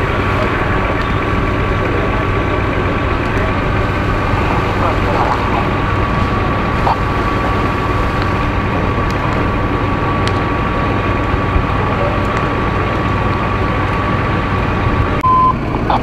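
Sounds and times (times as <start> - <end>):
fire engine pumps rumbling: 0.0 - 16.0
high whine: 0.0 - 16.0.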